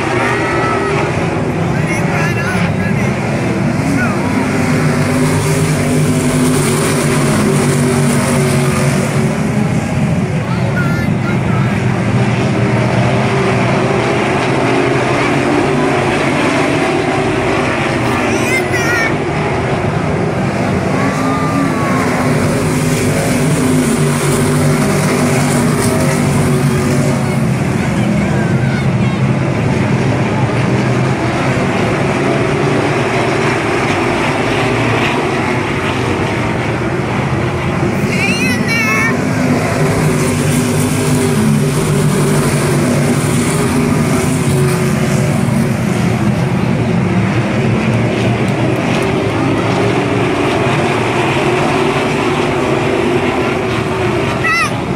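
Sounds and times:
racing car engines droning: 0.0 - 54.9.

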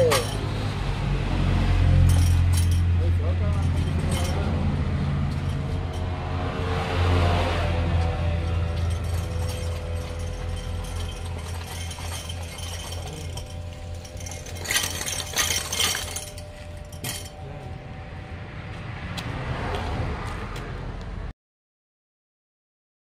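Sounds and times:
metal clinking and rattling: 0.0 - 0.8, 1.9 - 6.4, 8.0 - 17.8
steady low hum: 7.7 - 19.4.

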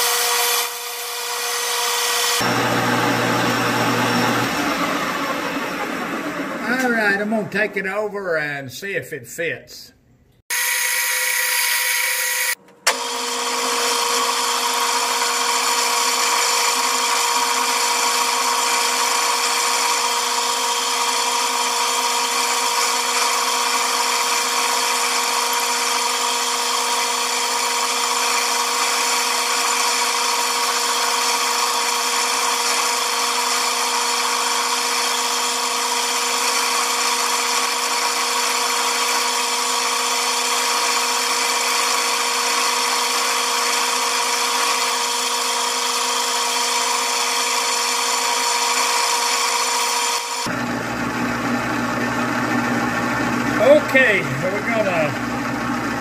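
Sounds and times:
metal lathe whining: 0.0 - 7.2, 10.5 - 56.0.

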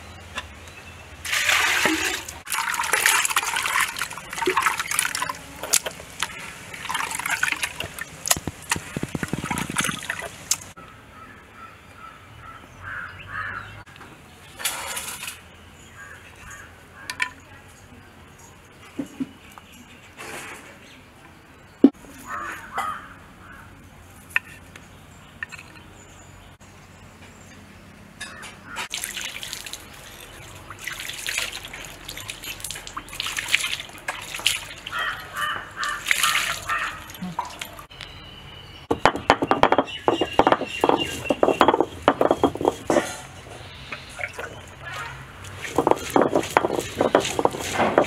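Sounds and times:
water splashing onto stone slab: 1.3 - 10.8, 28.9 - 37.8, 44.2 - 48.0
stone roller scraping on slab: 39.4 - 43.3, 45.5 - 48.0.

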